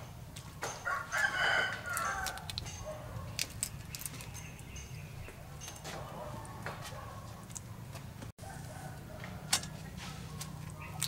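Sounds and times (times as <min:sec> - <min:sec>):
rooster crowing: 0:00.8 - 0:02.5, 0:08.4 - 0:09.9
prawn shells snapping: 0:01.2 - 0:04.7.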